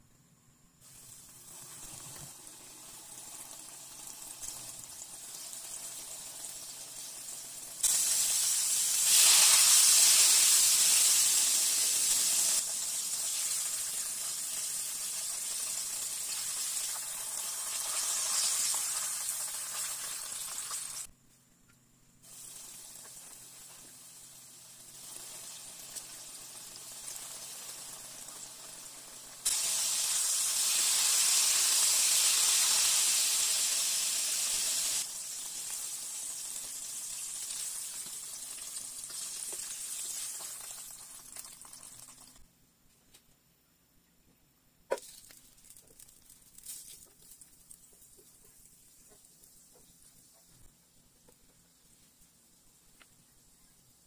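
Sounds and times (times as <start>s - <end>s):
food deep-frying in oil: 0.8s - 21.1s, 22.2s - 42.4s, 44.9s - 54.0s.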